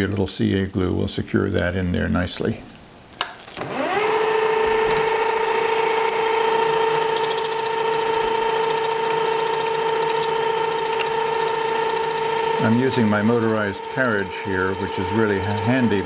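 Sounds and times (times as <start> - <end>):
lathe motor whine: 3.6 - 16.0
lathe switch click: 5.7 - 6.2.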